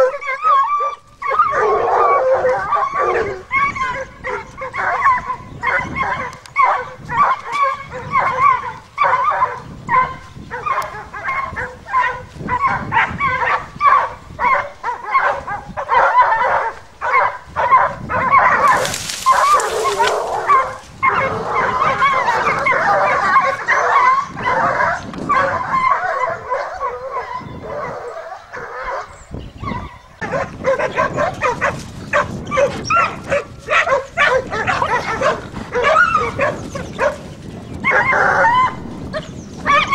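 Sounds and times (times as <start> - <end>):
dog yelping: 0.0 - 37.2, 37.8 - 39.9
brush rustling: 18.6 - 21.1.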